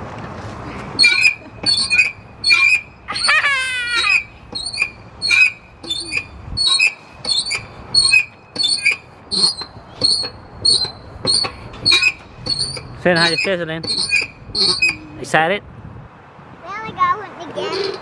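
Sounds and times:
wavering high squeal: 1.0s - 15.2s
playground equipment squeaking: 1.0s - 15.4s, 17.5s - 18.0s.

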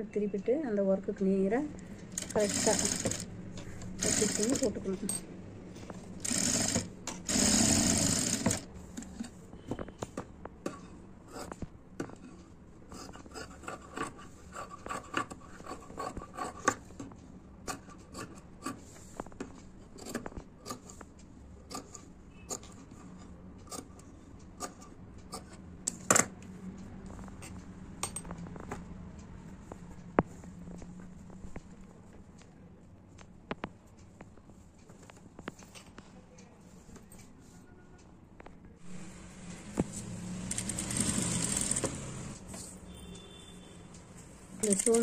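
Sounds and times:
sewing machine running: 2.1s - 3.3s, 3.9s - 4.8s, 6.2s - 8.7s, 40.1s - 42.4s.

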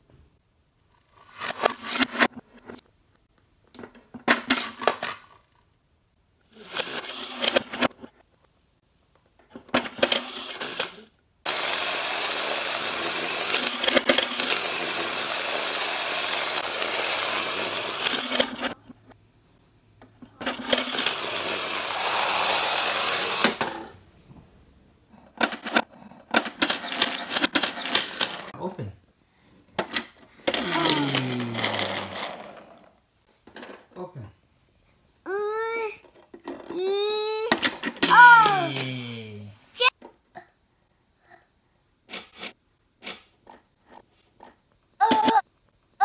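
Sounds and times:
plastic toys clicking and clattering: 1.0s - 2.9s, 3.6s - 5.6s, 6.5s - 8.2s, 9.2s - 19.2s, 20.0s - 23.9s, 25.2s - 28.6s, 29.7s - 34.0s, 35.6s - 39.0s, 42.1s - 45.5s
toy whirring rattle: 6.5s - 7.9s, 9.8s - 18.8s, 20.4s - 23.9s, 26.4s - 28.5s, 30.4s - 32.8s, 36.6s - 39.0s, 45.0s - 45.4s.

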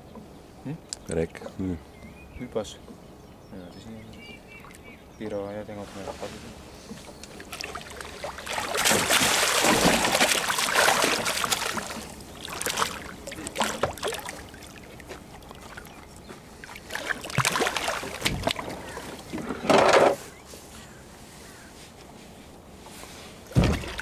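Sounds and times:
fish splashing in water: 7.2s - 19.3s, 23.5s - 24.0s.

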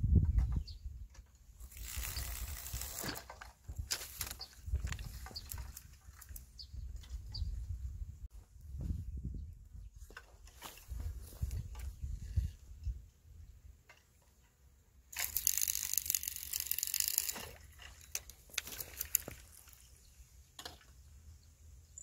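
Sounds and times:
low wind rumble: 0.0s - 1.1s, 6.4s - 10.0s
rustling and clicking handling noise: 1.1s - 7.4s, 10.0s - 12.0s, 13.8s - 21.0s
hissing crackling rustle: 1.6s - 3.2s, 15.1s - 19.9s.

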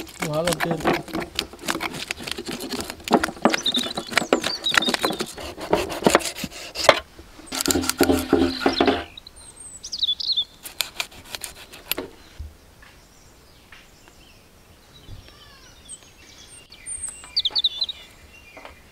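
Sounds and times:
knife scraping fish scales: 0.0s - 9.1s, 10.6s - 12.0s
birds chirping: 0.0s - 18.9s.

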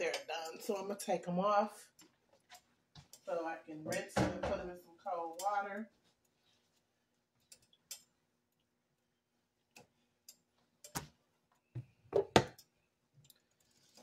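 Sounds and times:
kitchen clicks and knocks: 3.9s - 4.7s, 11.8s - 12.7s.

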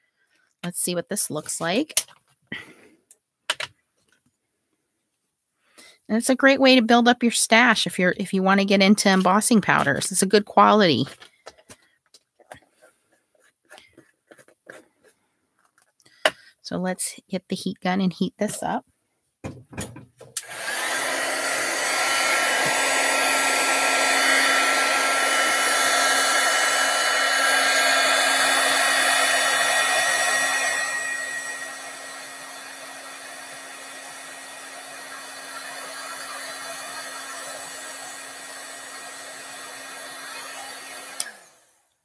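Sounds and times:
heat gun blowing: 20.4s - 41.7s.

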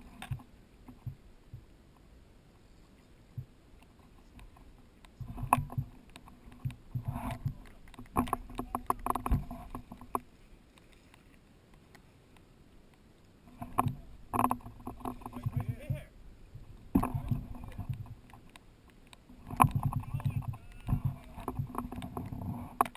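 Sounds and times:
muffled knocks and splashing: 5.2s - 10.3s, 13.5s - 18.6s, 19.3s - 22.9s.

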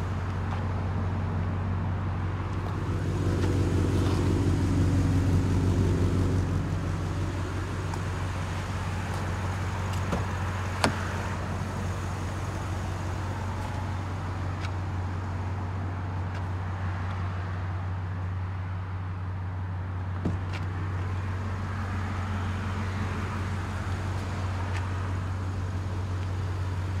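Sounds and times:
pickup engine idling: 0.0s - 16.0s.

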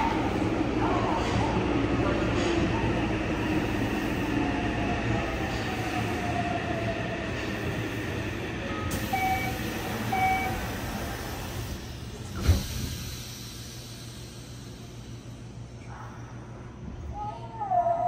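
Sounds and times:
train wheel and rail rumble: 0.0s - 18.0s
short beeps: 9.1s - 10.6s.

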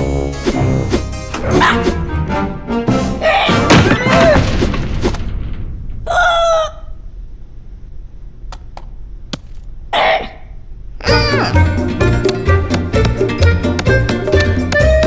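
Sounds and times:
background music: 0.0s - 4.5s, 11.0s - 15.0s.

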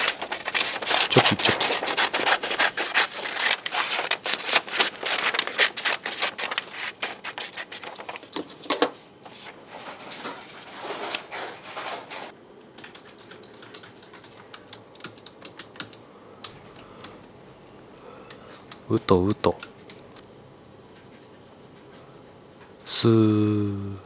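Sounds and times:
scissors cutting paper: 0.0s - 8.5s
paper rustling: 0.0s - 12.3s
computer keyboard typing: 12.7s - 17.2s.

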